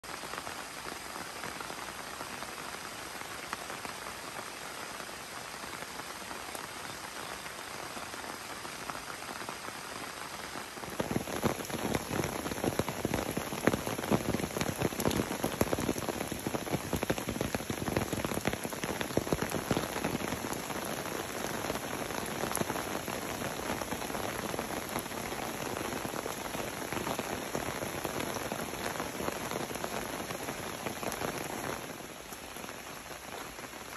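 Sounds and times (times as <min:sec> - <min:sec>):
rain falling: 0:00.0 - 0:33.9
raindrops striking: 0:10.8 - 0:33.9.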